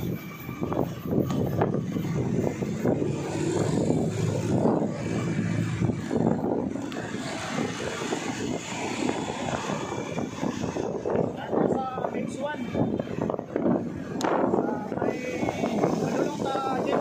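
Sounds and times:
motor engine droning: 0.0s - 11.4s.

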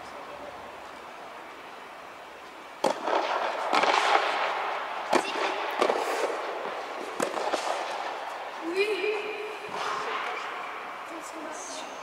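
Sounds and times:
tennis rackets hitting ball: 2.8s - 8.5s.

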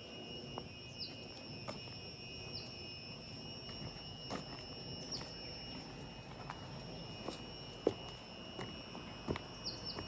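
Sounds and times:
high-pitched electrical whine: 0.0s - 10.0s
faint footsteps tapping: 3.7s - 10.0s.

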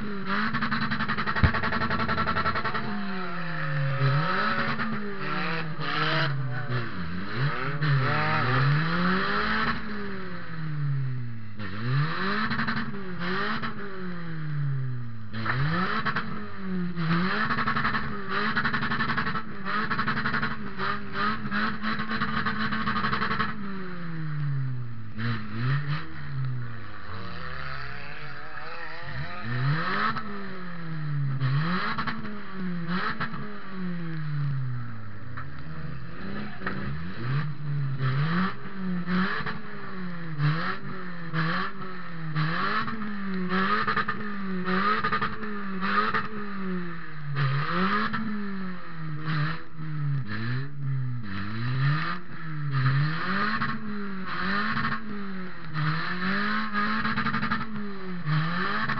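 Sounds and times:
car engine revving: 0.0s - 58.9s.

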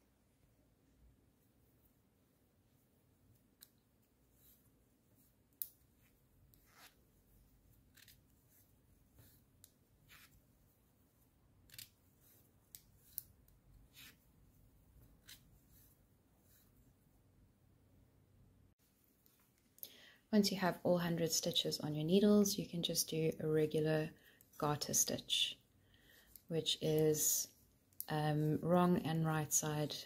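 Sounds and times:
knitting needles clicking: 3.3s - 4.7s, 5.5s - 7.0s, 7.7s - 8.6s, 9.2s - 10.4s, 11.6s - 14.2s.

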